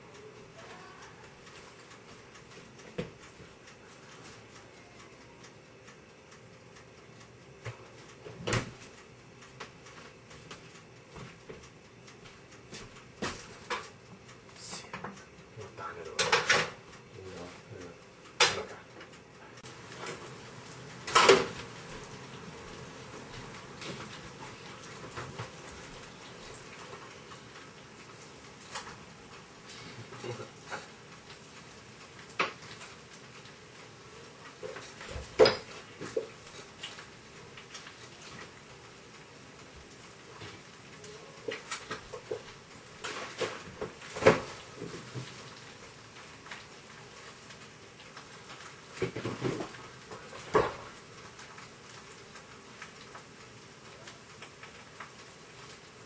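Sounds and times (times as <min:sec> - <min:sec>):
items knocking against fridge shelves: 0:43.3 - 0:45.4.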